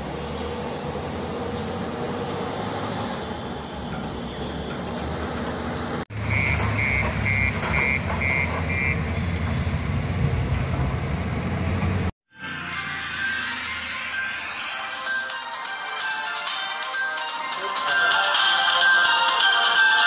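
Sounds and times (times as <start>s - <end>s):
heavy machinery diesel engines rumbling: 0.0s - 12.1s.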